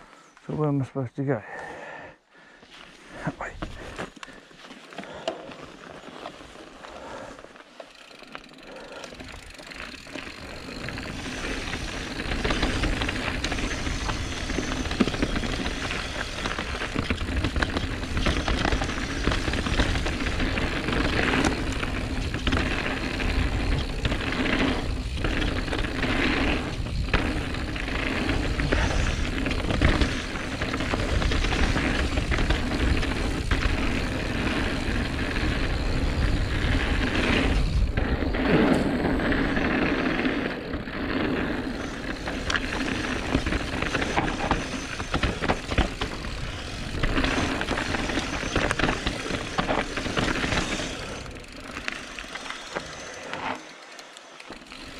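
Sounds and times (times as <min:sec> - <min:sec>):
wind and tyre noise: 0:02.6 - 0:54.9
bike knocks and rattles: 0:09.2 - 0:40.1, 0:40.9 - 0:53.5.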